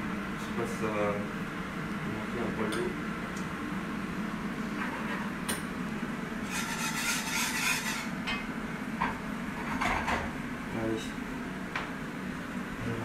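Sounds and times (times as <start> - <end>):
steady low hum: 0.0 - 13.0
utensil stirring and scraping pot: 6.4 - 8.2.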